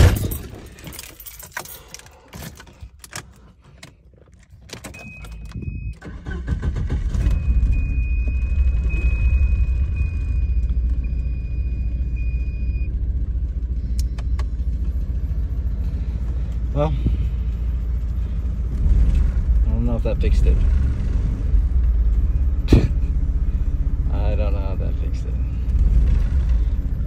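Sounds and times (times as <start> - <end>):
keys jangling in ignition: 0.0 - 6.4
car engine cranking and running: 0.0 - 27.0.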